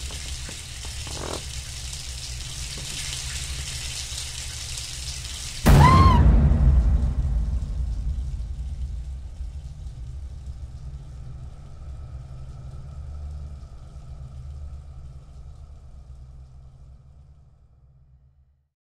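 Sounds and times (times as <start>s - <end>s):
low rumbling drone: 5.6s - 18.0s.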